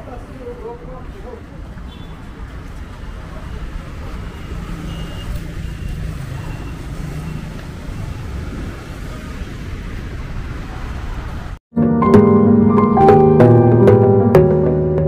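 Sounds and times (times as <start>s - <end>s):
vehicles passing: 0.0s - 11.6s.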